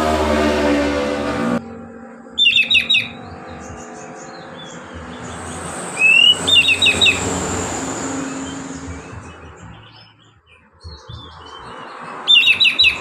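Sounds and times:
magpie-robin song: 2.3 - 7.4, 8.3 - 13.0
short rising whistle: 5.9 - 8.6.

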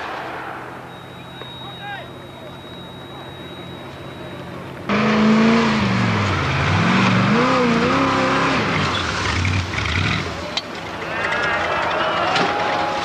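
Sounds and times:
car engine revving hard: 4.9 - 10.4.

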